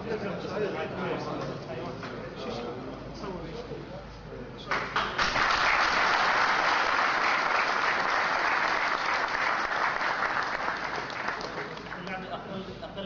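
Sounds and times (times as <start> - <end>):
audience clapping: 4.7 - 12.2.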